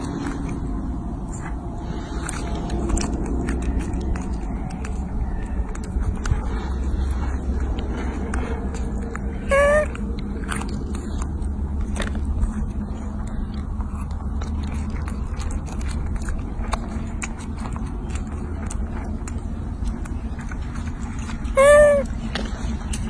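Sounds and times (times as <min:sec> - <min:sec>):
low rumble: 0:00.0 - 0:23.0
wet chewing smacks: 0:00.0 - 0:23.0
high-pitched monkey call: 0:09.5 - 0:09.9, 0:21.6 - 0:22.1.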